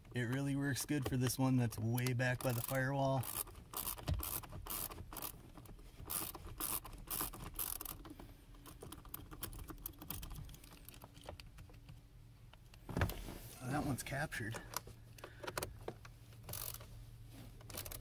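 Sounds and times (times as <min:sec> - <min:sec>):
ratchet clicking: 0:02.4 - 0:05.4, 0:06.0 - 0:11.0, 0:16.4 - 0:16.9, 0:17.6 - 0:18.0.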